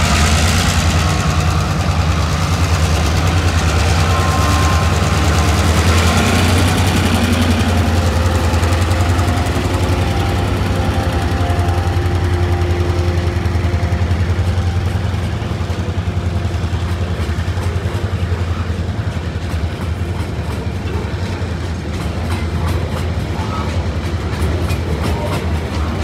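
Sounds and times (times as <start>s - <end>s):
freight train rumbling past: 0.0s - 26.0s
wheels clicking over rail joints: 0.0s - 26.0s.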